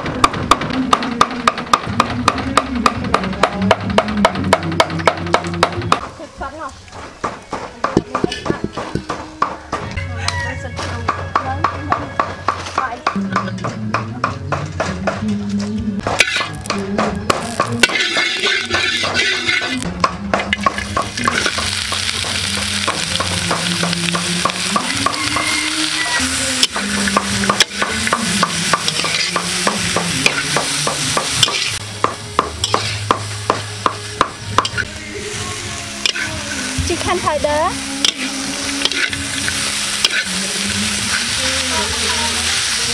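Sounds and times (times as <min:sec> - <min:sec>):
metal spatula scraping a wok: 0:16.0 - 0:16.7, 0:17.4 - 0:19.9, 0:20.5 - 0:31.8, 0:32.6 - 0:33.1, 0:36.0 - 0:37.4, 0:38.0 - 0:42.9
onions sizzling in hot oil: 0:16.0 - 0:19.9, 0:20.5 - 0:42.9.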